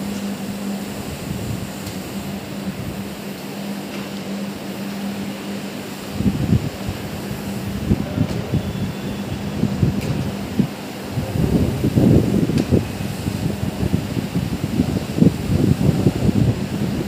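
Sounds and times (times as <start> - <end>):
floor scrubber motor hum: 0.0 - 17.0.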